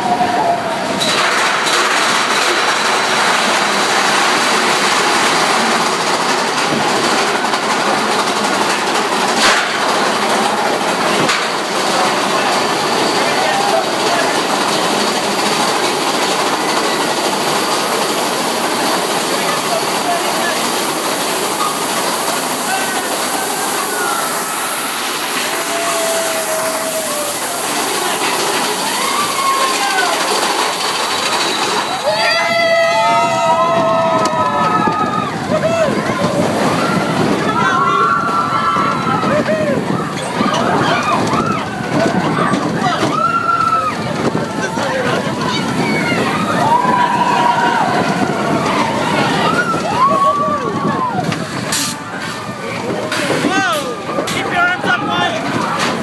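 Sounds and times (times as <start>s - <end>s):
roller coaster rattling rumble: 0.0s - 56.0s
rushing air: 0.7s - 42.2s.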